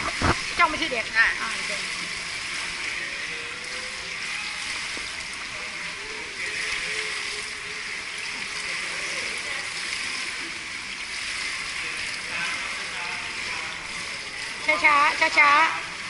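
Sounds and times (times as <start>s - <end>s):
water splashing in pool: 0.0s - 16.0s
faint distant voices: 1.6s - 16.0s.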